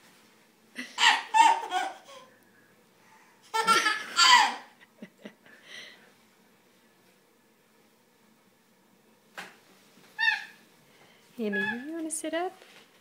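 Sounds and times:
baby laughing: 0:00.8 - 0:02.3, 0:03.5 - 0:04.8.

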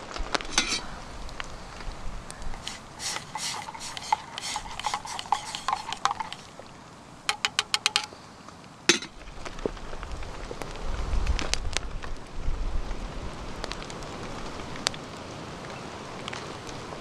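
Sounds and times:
spoon stirring in steel mug: 0:00.5 - 0:00.9, 0:02.5 - 0:06.5, 0:07.3 - 0:08.1
taps on mug: 0:07.3 - 0:08.1.

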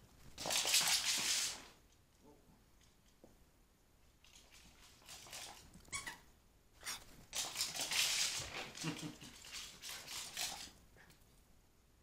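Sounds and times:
dog scuffling: 0:06.8 - 0:10.8.

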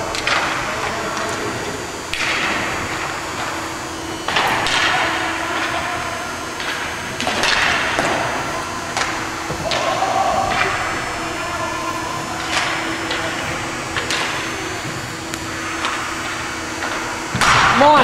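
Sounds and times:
hockey sticks knocking puck: 0:06.6 - 0:11.0, 0:12.2 - 0:14.6.

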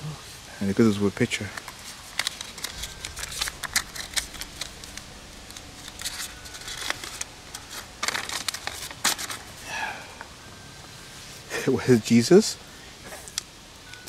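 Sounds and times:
paper rustling and crinkling: 0:01.4 - 0:09.6.

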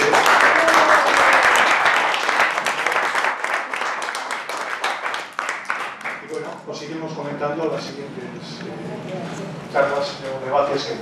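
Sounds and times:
group applauding: 0:00.0 - 0:06.6.

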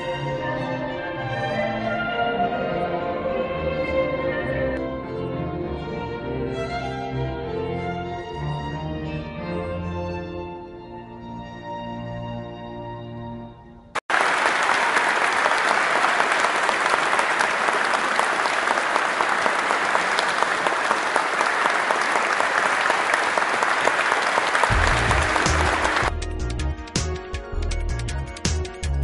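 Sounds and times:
string ensemble and choir chord: 0:00.0 - 0:10.6
audience clapping: 0:14.0 - 0:26.2
low-pitched music: 0:24.7 - 0:29.0.

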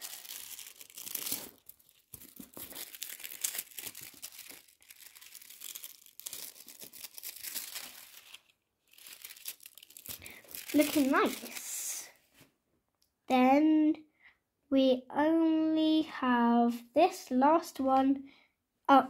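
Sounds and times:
foil crinkling: 0:00.0 - 0:11.8.

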